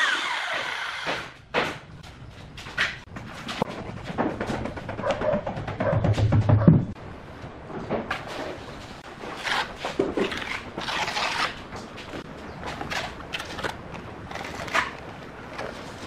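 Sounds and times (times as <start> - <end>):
trowel scraping wet coating: 9.2 - 11.7.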